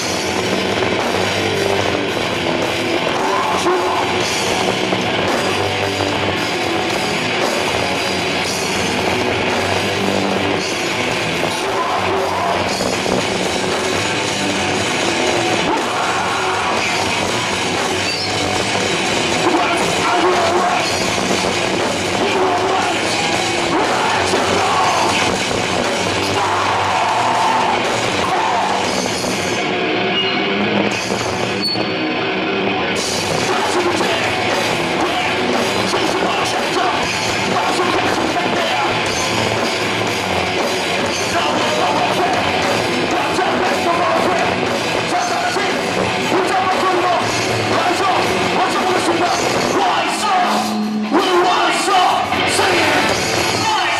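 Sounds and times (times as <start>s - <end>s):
live rock band playing: 0.0s - 53.9s
man singing into a microphone: 3.1s - 4.3s, 11.5s - 12.7s, 15.6s - 17.0s, 19.4s - 21.0s, 22.2s - 25.3s, 33.4s - 34.4s, 35.0s - 39.0s, 41.1s - 53.9s.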